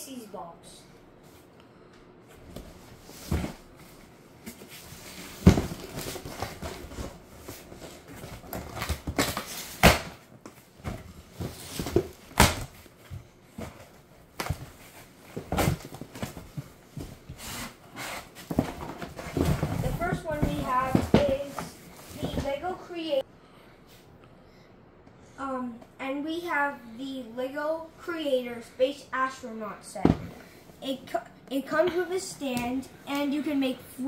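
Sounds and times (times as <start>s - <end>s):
cardboard rustling: 2.5s - 22.8s
cardboard box knocks and thumps: 5.4s - 7.0s, 18.4s - 22.5s.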